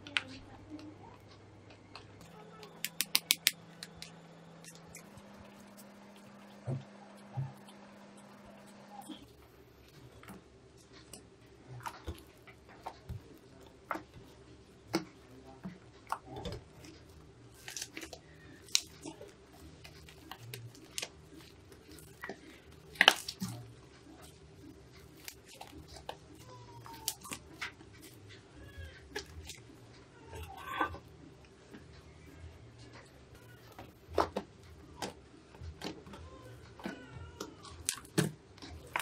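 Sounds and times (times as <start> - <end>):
faint steady hum: 0.0 - 39.0
slime squelching: 2.2 - 31.9.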